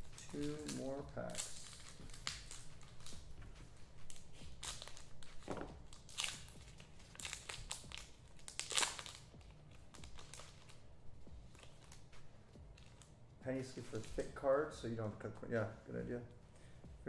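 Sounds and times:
card pack wrapper crinkling and tearing: 0.0s - 3.3s, 4.0s - 10.9s, 11.5s - 14.5s.

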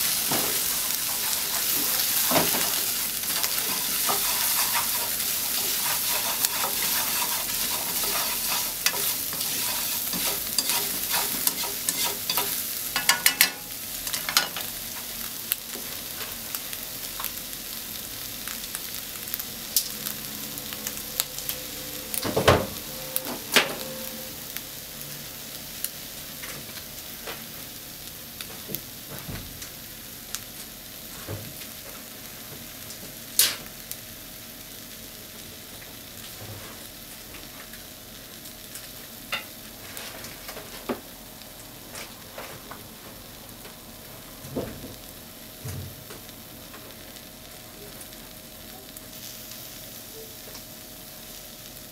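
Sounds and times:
food sizzling in a frying pan: 0.0s - 51.9s
chopsticks scraping a pan: 0.2s - 14.7s.

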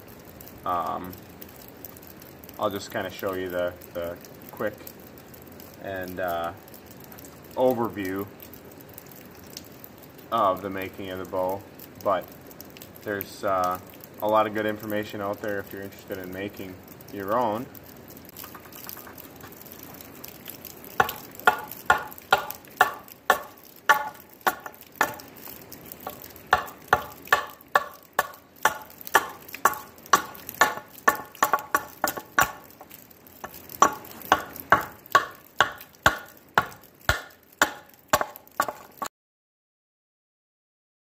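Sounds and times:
hatchet chopping wood: 21.0s - 39.1s.

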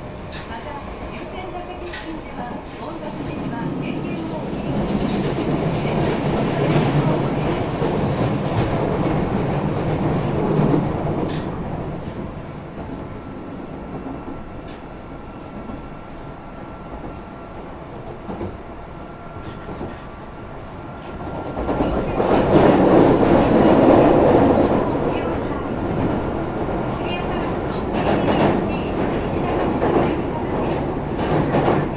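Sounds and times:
subway train rolling on rails: 0.0s - 31.9s.

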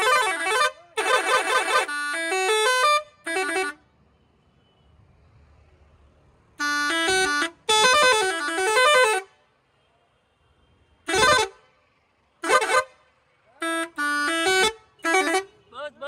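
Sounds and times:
musical air horn blasts: 0.0s - 3.8s, 6.6s - 9.3s, 11.0s - 11.6s, 12.4s - 13.0s, 13.6s - 15.6s.

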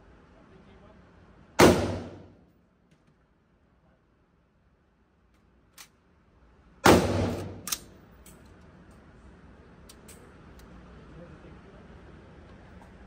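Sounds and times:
gunshot echoing indoors: 1.6s - 2.4s, 6.8s - 7.8s.

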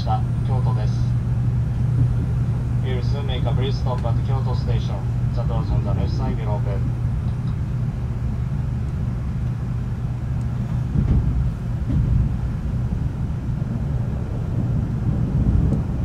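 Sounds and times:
train running low rumble: 0.0s - 16.0s.

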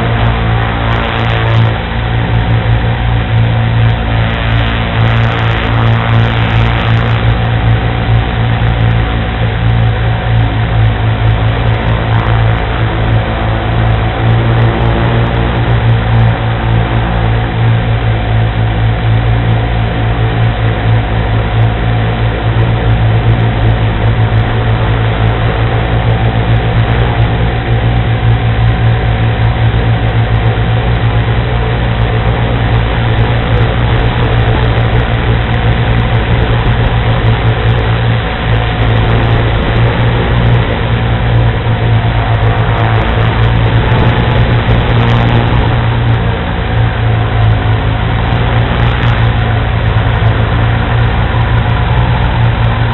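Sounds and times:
quadcopter motors and propellers: 0.0s - 52.9s.

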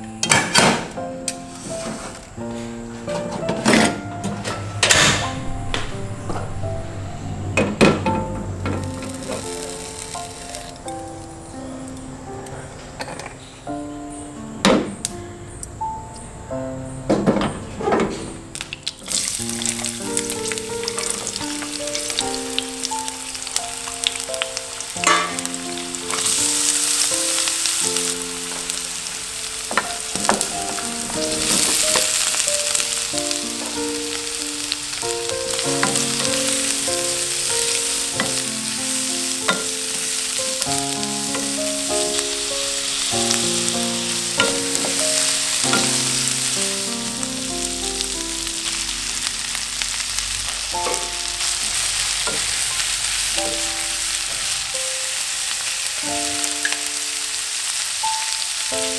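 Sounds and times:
gentle background melody: 0.0s - 58.9s
food sizzling in hot oil: 8.5s - 11.3s, 18.5s - 58.9s.

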